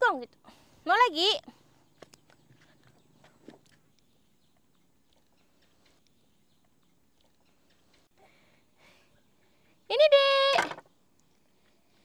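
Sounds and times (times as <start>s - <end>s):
small clicks and chirps: 2.0s - 8.1s, 11.1s - 11.5s.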